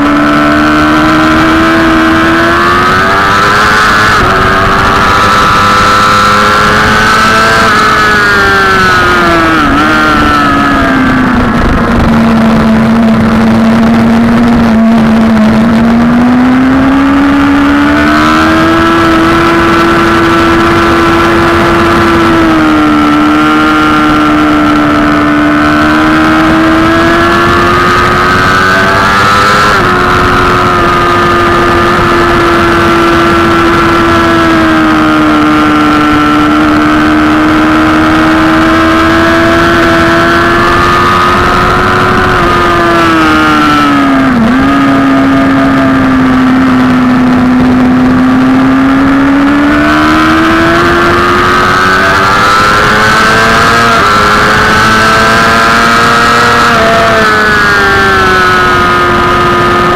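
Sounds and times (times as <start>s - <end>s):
motorcycle engine revving high: 0.0s - 59.9s
wind noise: 0.0s - 59.9s.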